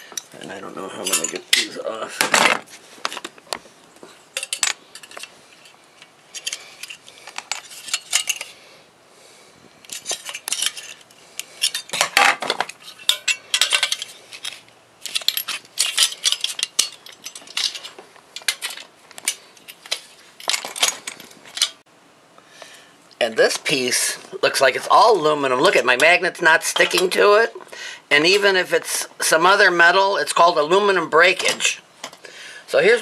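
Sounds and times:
pliers clinking on metal tray: 13.0 - 18.8.

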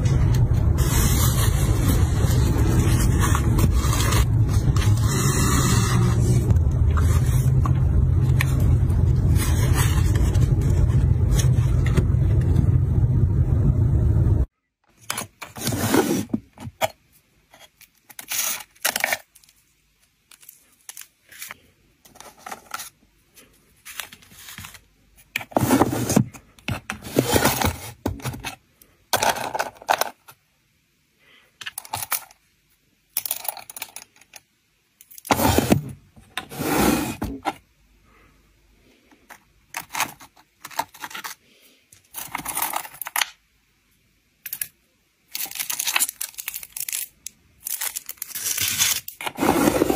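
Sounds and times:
wooden drawers sliding and knocking: 15.5 - 16.6, 25.4 - 28.6, 35.3 - 37.6, 49.2 - 49.9
hands rustling plastic sleeves: 45.3 - 49.9.

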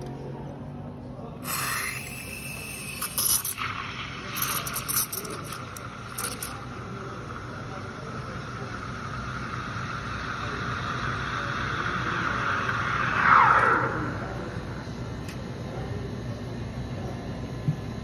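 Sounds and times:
steam wand steaming milk: 1.4 - 14.6
tone sweeping down in pitch: 12.7 - 15.0.

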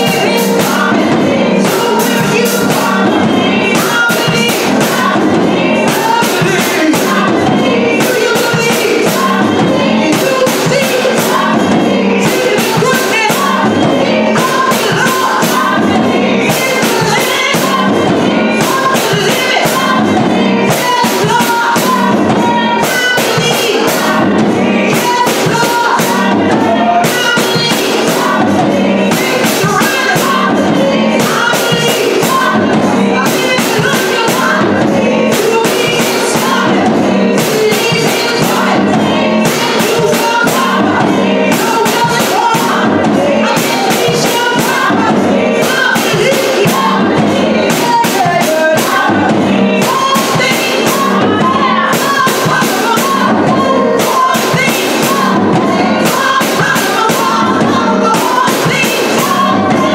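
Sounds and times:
drum kit beat: 0.0 - 59.9
keyboard: 0.0 - 59.9
women singing gospel: 0.0 - 59.9.

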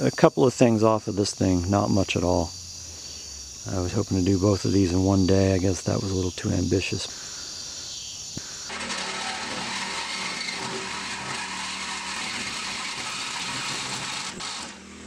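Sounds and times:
reciprocating saw cutting metal: 8.7 - 15.0.

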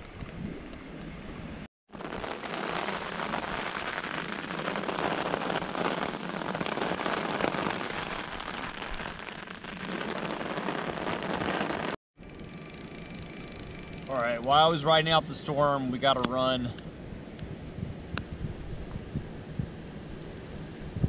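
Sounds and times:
rain pattering on umbrella: 1.9 - 12.0.

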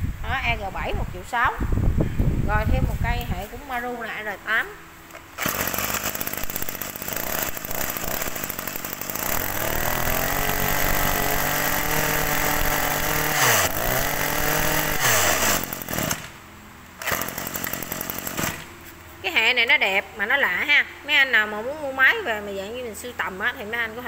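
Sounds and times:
brush cutter engine revving: 5.1 - 16.4, 17.0 - 18.8.

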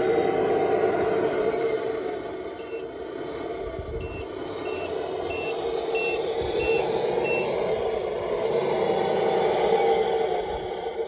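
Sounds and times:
toy truck motor drone: 0.0 - 11.0
reversing beeper beeps: 2.6 - 2.9, 4.0 - 7.5.

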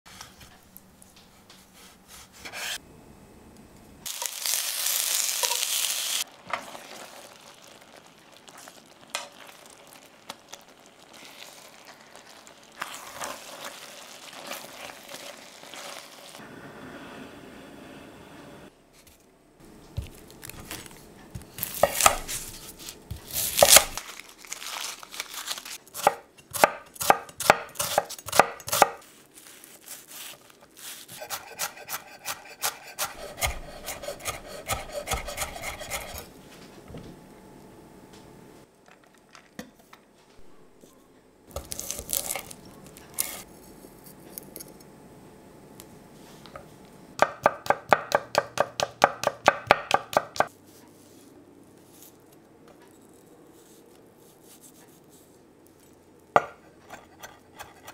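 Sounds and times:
knife chopping on wooden board: 26.0 - 29.0, 31.1 - 36.2, 56.4 - 57.9.

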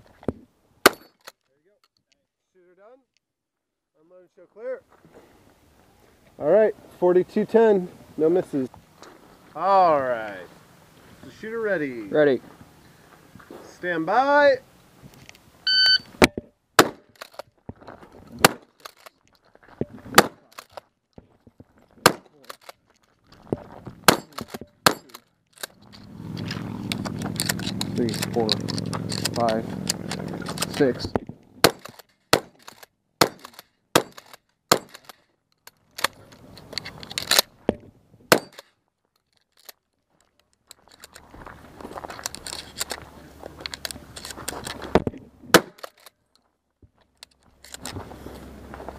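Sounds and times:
shotgun shots: 16.8 - 17.2, 20.1 - 20.5, 22.0 - 22.3, 24.1 - 25.1, 31.6 - 35.1, 38.3 - 38.6, 45.5 - 46.0.

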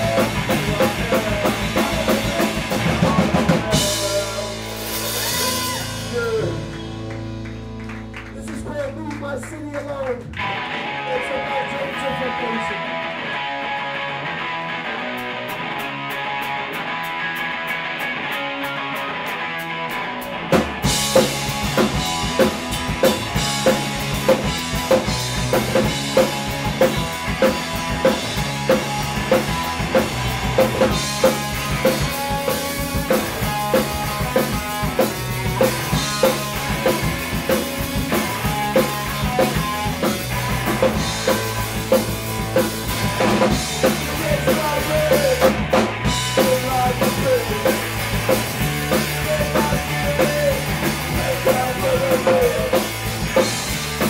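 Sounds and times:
drum kit beat: 0.0 - 9.7, 15.1 - 54.0
bass notes: 0.0 - 54.0
electric guitar: 0.0 - 54.0
live rock band: 0.0 - 54.0.

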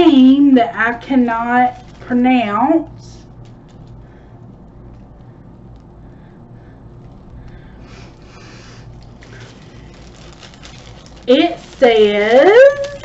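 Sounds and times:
steady low hum: 0.0 - 13.0
fabric bag rustling: 1.3 - 4.1, 7.0 - 13.0.

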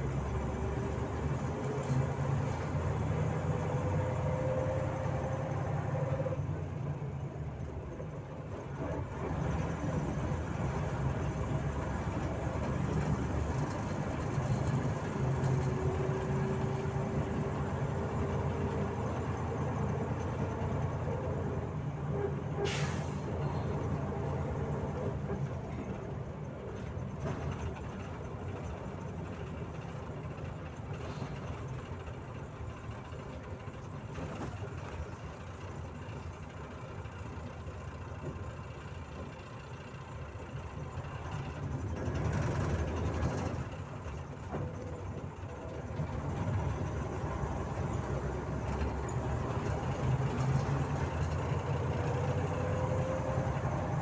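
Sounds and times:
bus engine rumble: 0.0 - 54.0
short sharp hiss: 22.6 - 23.3.

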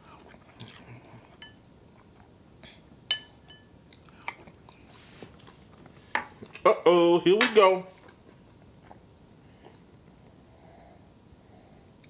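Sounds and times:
faint chewing: 0.0 - 2.3, 3.9 - 6.7
spoon clinking glass bowl: 3.1 - 3.7, 7.4 - 7.7.

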